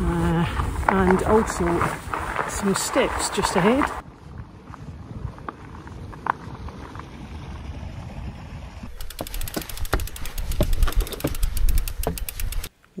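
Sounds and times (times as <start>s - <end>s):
wind and tyre rumble: 0.0s - 13.0s
bike freehub ticking: 8.9s - 13.0s.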